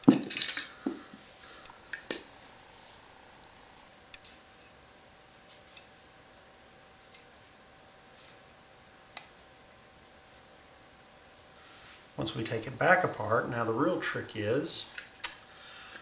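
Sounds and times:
metal parts clicking and clinking: 0:00.1 - 0:00.8, 0:05.5 - 0:05.9, 0:06.6 - 0:07.3, 0:08.2 - 0:08.5.

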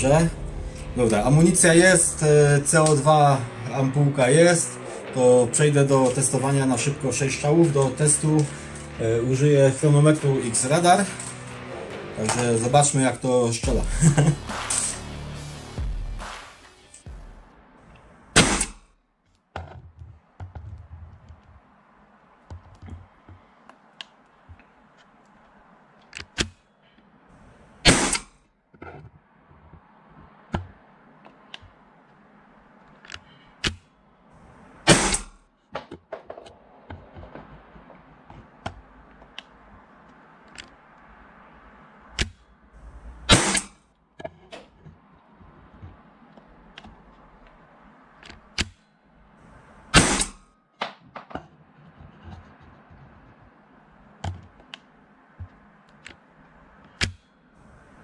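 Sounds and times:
air pistol shots: 0:14.5 - 0:15.0, 0:18.3 - 0:18.9, 0:27.8 - 0:28.4, 0:34.8 - 0:35.4, 0:43.2 - 0:43.8, 0:49.9 - 0:50.5.

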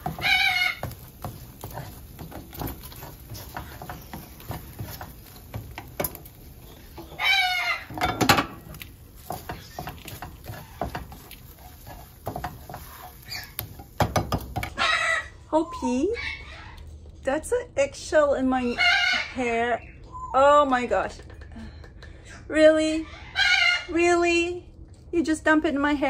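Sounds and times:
parrot squawk: 0:00.0 - 0:00.9, 0:07.1 - 0:08.0, 0:14.7 - 0:15.5, 0:18.6 - 0:19.4, 0:23.0 - 0:24.0
spatula scraping frying pan: 0:00.0 - 0:14.8.

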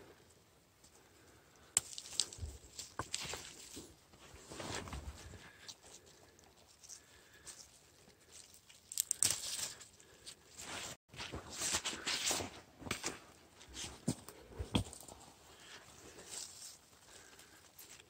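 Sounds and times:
greens tearing at the stem: 0:08.4 - 0:09.9.

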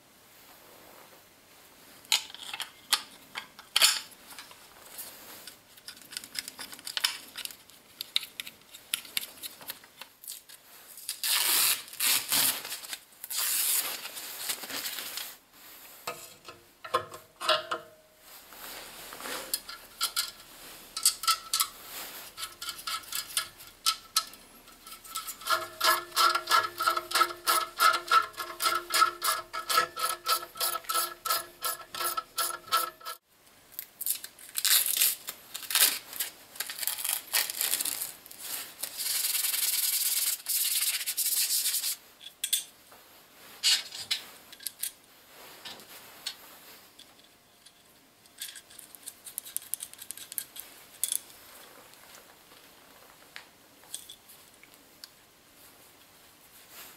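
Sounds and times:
steel parts scraping: 0:19.2 - 0:33.2.

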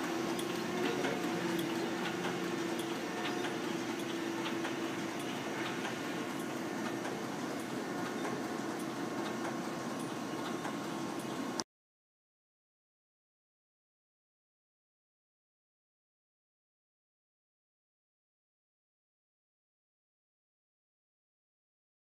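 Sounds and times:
printing press running: 0:00.0 - 0:11.6.

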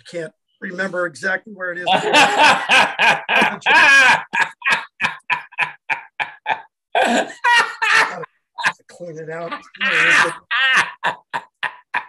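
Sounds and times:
man laughing heartily: 0:01.8 - 0:08.9, 0:09.5 - 0:12.0.

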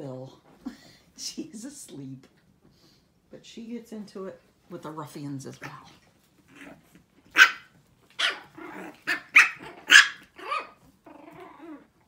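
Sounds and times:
puppies yapping: 0:06.6 - 0:11.0.

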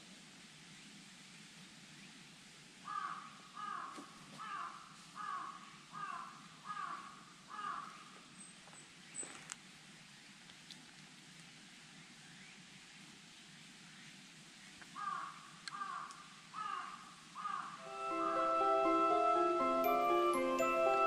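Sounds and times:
crow cawing: 0:02.9 - 0:08.1, 0:15.0 - 0:17.9.

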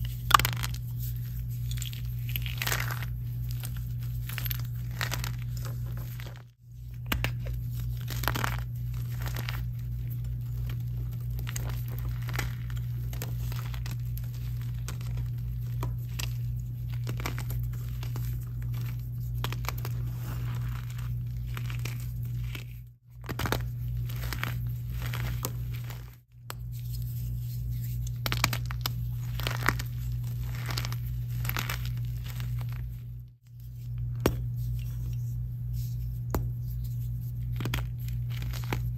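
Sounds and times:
steady low hum: 0:00.0 - 0:38.9
chalk blocks crunching: 0:00.1 - 0:06.4.

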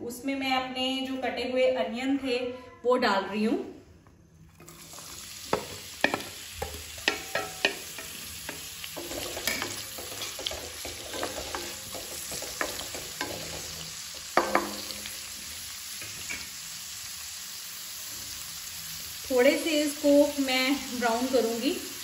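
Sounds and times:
onions sizzling in oil: 0:04.5 - 0:22.0
spatula knocking against pan: 0:05.5 - 0:13.6, 0:14.4 - 0:15.1.

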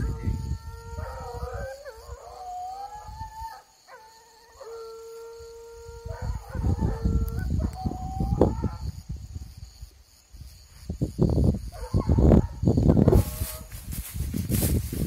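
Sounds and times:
hounds baying and howling: 0:00.0 - 0:09.1, 0:11.6 - 0:13.8.

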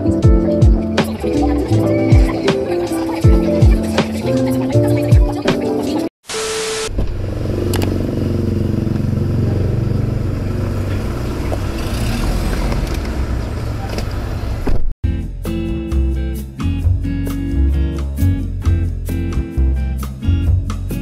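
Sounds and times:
static hiss: 0:06.2 - 0:07.0
car noise: 0:06.6 - 0:14.9.

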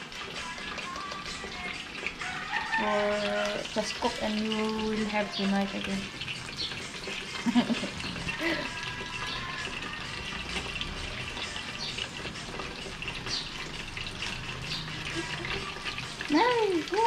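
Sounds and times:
food sizzling in hot oil: 0:00.0 - 0:17.0.

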